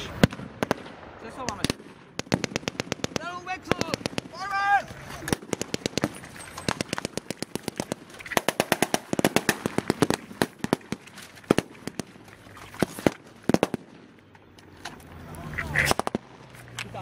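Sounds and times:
small-arms gunfire: 0.0 - 4.5, 5.2 - 12.2, 12.8 - 14.1, 15.8 - 16.3.

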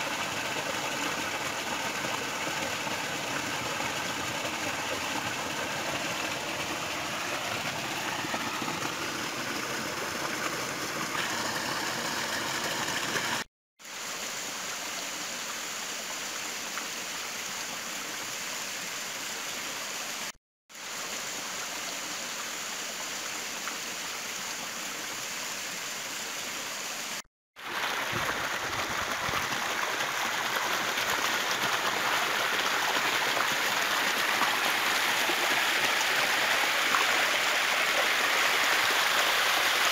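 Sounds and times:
stream splashing over boulders: 0.0 - 17.9, 27.6 - 39.9.

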